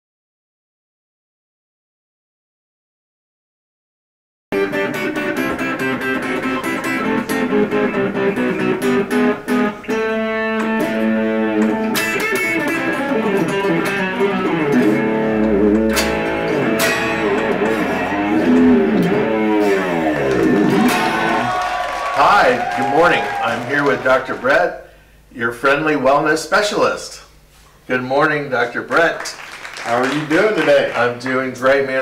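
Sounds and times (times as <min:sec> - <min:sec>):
electric guitar instrumental: 0:04.5 - 0:24.4.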